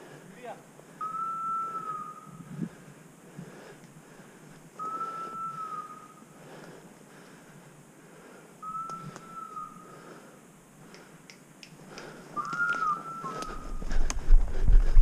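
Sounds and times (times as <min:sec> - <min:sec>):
long whistled notes: 0:01.0 - 0:02.6, 0:04.8 - 0:06.3, 0:08.6 - 0:10.1, 0:12.4 - 0:13.8
twig and brush clicks: 0:10.8 - 0:14.2.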